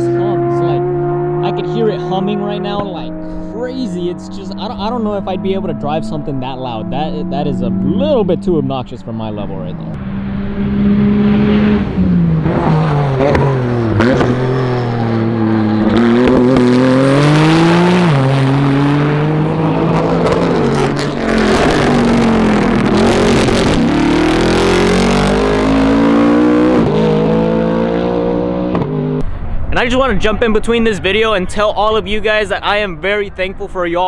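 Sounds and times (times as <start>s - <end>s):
race car engines at full throttle: 0.0s - 34.0s.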